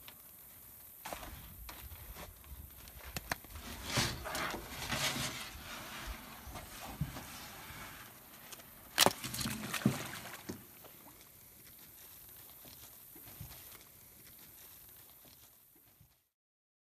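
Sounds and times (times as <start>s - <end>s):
faint water noise: 5.6s - 15.2s
splashes in water: 9.0s - 11.2s.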